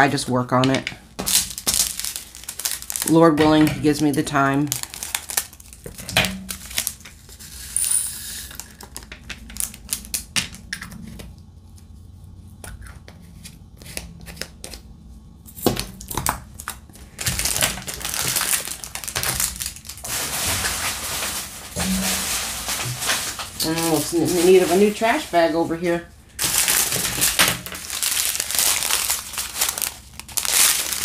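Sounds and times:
plastic bags crinkling: 0:00.7 - 0:07.7, 0:08.4 - 0:10.6, 0:15.6 - 0:31.0.

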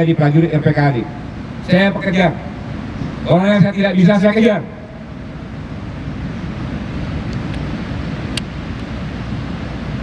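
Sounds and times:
wind rumble on microphone: 0:04.6 - 0:10.0.

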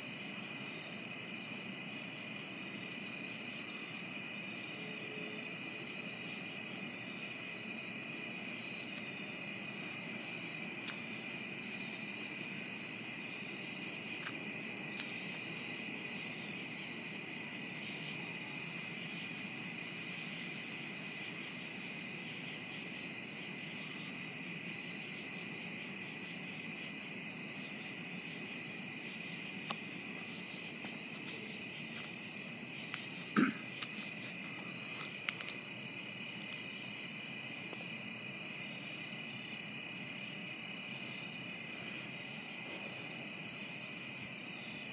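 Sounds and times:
crickets and insects trilling: 0:00.0 - 0:44.9.

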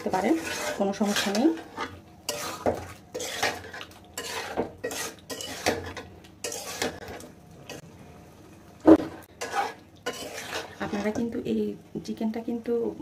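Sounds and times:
metal spoon scraping a pan: 0:00.0 - 0:07.8, 0:08.9 - 0:11.3.

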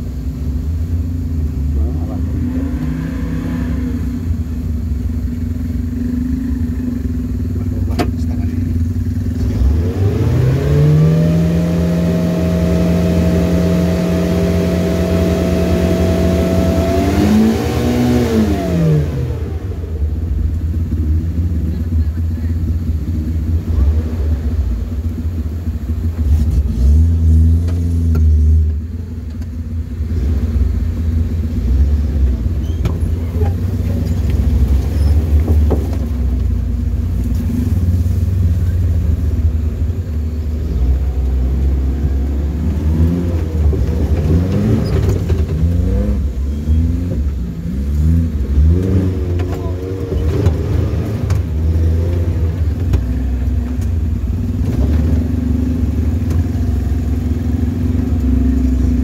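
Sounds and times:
engine rumbling under load: 0:00.0 - 0:59.0
engine revving: 0:01.4 - 0:28.9, 0:30.0 - 0:59.0.

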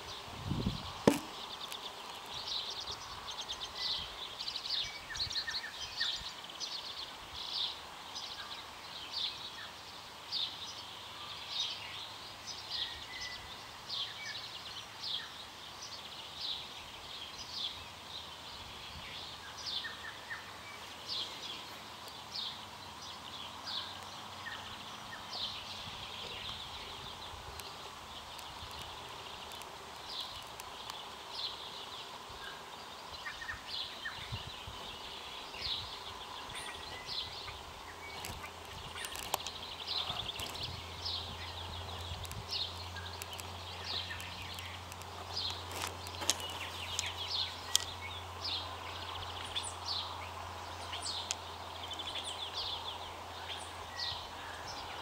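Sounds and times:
birds chirping and singing: 0:19.0 - 0:55.0.

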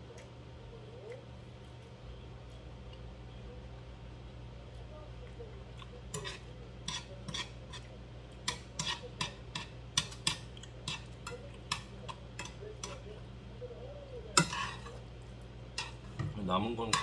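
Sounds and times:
metal chopsticks tapping a pot: 0:08.4 - 0:13.0, 0:14.4 - 0:14.8, 0:15.8 - 0:17.0.

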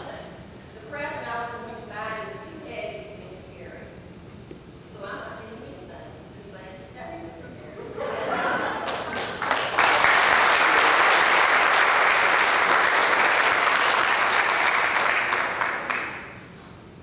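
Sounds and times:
congregation applauding: 0:08.7 - 0:16.6.

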